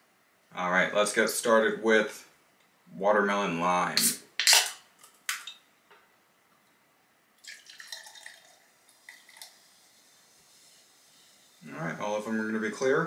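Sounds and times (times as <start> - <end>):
drink pouring into a glass: 7.4 - 10.2.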